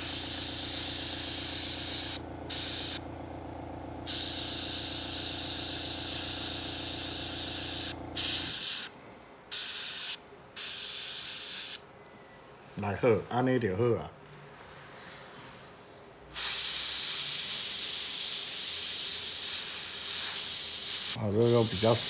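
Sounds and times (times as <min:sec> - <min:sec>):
airbrush spraying hiss: 0:00.0 - 0:03.0, 0:04.0 - 0:11.8, 0:16.3 - 0:22.0
steady low hum: 0:00.0 - 0:09.5.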